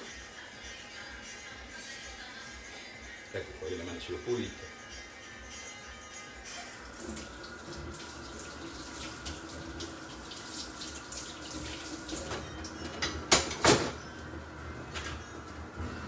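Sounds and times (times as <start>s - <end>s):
tap water running into sink: 7.0s - 13.9s.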